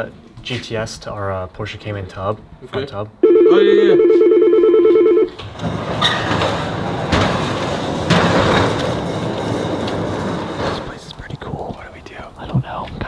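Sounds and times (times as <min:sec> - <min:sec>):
warbling electronic ringer: 0:03.2 - 0:05.3
metal sliding gate rattling open: 0:05.4 - 0:10.9.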